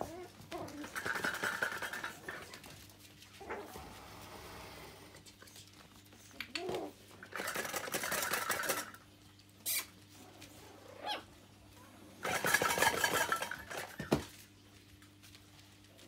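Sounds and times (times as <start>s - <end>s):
puppy paws scrabbling on fabric: 0.0s - 3.8s, 5.2s - 16.0s
puppy yips: 11.0s - 11.3s.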